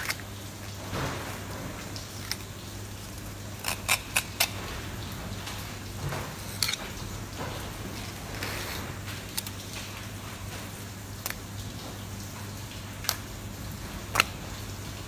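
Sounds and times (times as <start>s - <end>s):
knife cutting fish: 3.6s - 4.6s.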